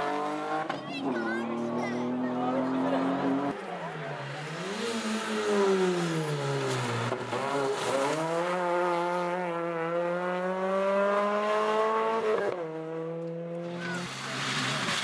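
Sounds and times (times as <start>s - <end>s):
car engine at full throttle: 0.0s - 15.0s.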